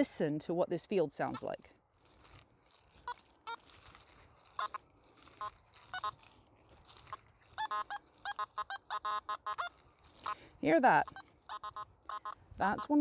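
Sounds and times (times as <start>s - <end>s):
metal detector beeps: 5.4s - 6.2s, 7.6s - 10.4s, 11.0s - 13.0s.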